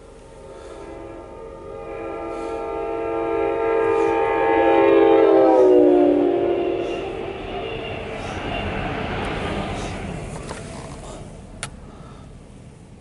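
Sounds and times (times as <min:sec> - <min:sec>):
train horn chord: 0:00.0 - 0:10.1
rushing of passing train cars: 0:00.0 - 0:13.0.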